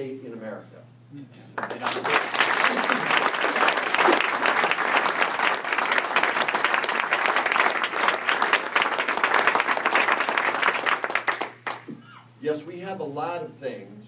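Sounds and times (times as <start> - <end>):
crowd applauding: 1.6 - 11.9.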